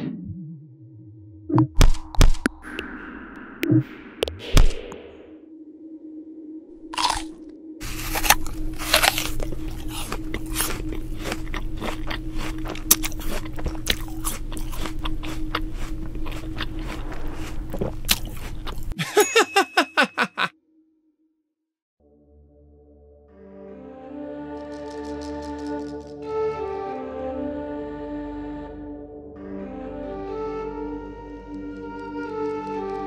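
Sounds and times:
steady hum and low rumble: 2.6 - 19.0.

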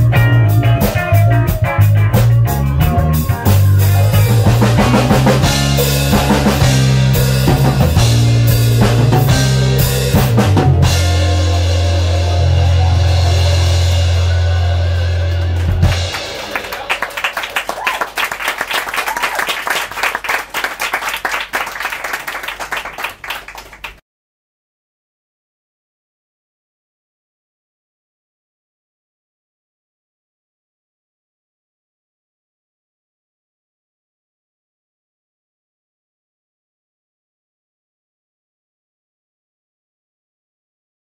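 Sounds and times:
held bass guitar notes: 0.0 - 17.2
live rock band playing: 0.0 - 18.1.

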